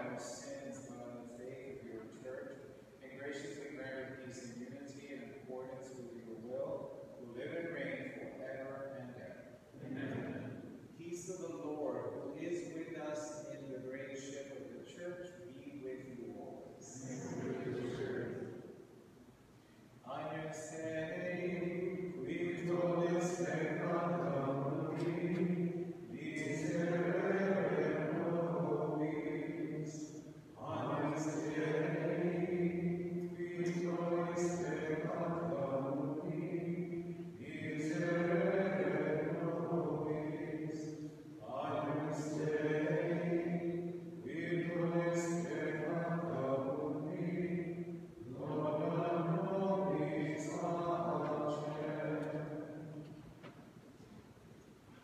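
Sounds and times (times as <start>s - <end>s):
person chanting: 0.0s - 2.4s, 9.8s - 10.4s, 11.0s - 18.5s, 20.1s - 52.6s.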